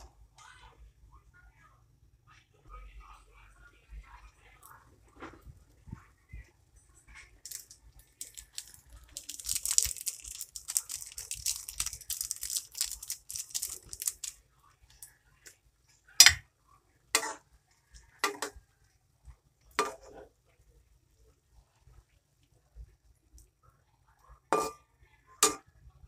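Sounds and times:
dried leaves crinkling: 0:07.4 - 0:14.4.

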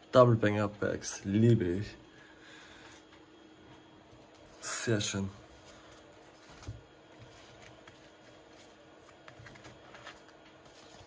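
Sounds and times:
soft card rustling: 0:04.1 - 0:11.0
cards tapping and clicking: 0:07.3 - 0:11.0.

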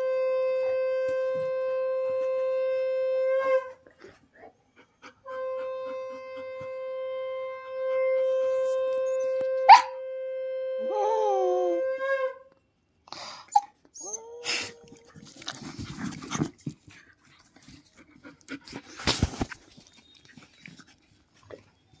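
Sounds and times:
puppy howling: 0:10.8 - 0:12.4, 0:14.0 - 0:15.3
puppy whining: 0:13.5 - 0:15.5.

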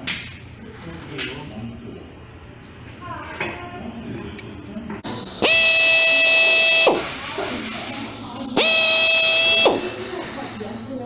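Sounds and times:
drill whining: 0:05.1 - 0:07.4, 0:08.5 - 0:10.2.

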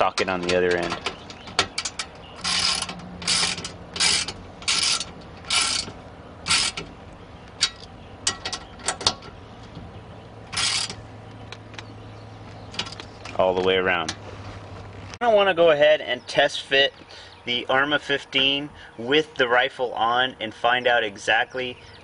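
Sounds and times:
ratchet wrench clicking: 0:01.8 - 0:05.9, 0:06.5 - 0:06.8, 0:10.5 - 0:11.0.

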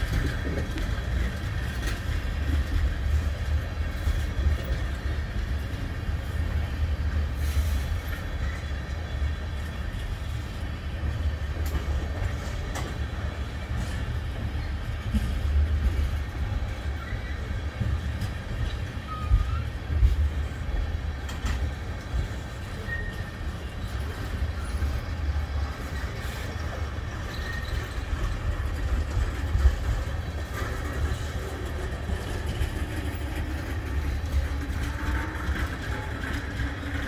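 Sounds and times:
train wheels rumbling on rail: 0:00.0 - 0:37.0.

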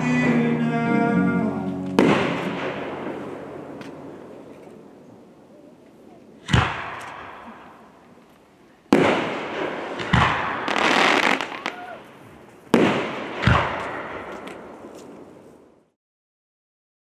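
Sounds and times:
firework bangs: 0:01.9 - 0:04.7, 0:06.4 - 0:08.0, 0:08.9 - 0:15.8
firework crackling: 0:01.9 - 0:05.0, 0:06.4 - 0:15.8.

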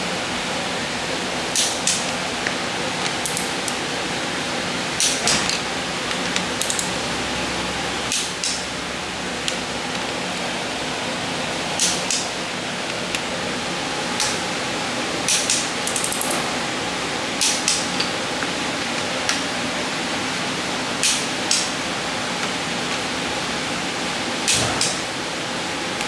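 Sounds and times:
torque wrench clicking: 0:03.2 - 0:03.8, 0:06.6 - 0:07.0.

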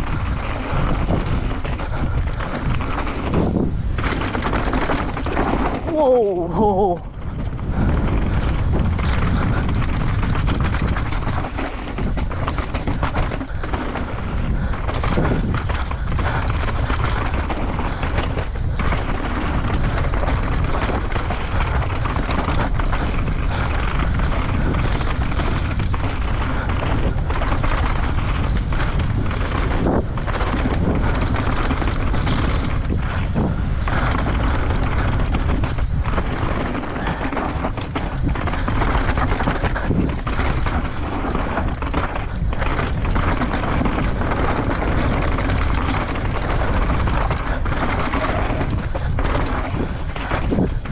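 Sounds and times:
bike clattering over ground: 0:00.0 - 0:50.9
wind rumble on camera: 0:00.0 - 0:50.9.

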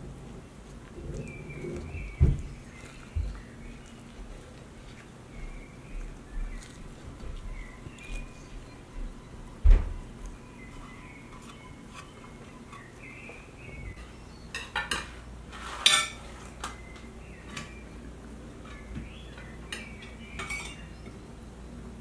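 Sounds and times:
dishes and utensils clinking: 0:14.0 - 0:16.4, 0:18.6 - 0:20.9.

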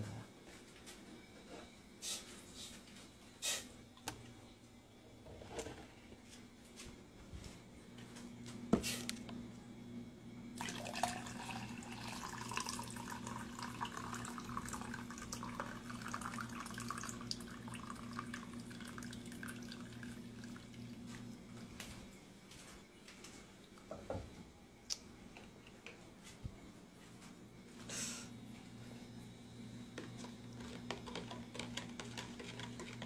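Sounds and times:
low electrical hum: 0:00.0 - 0:33.0
water running from a tap: 0:10.6 - 0:20.9.

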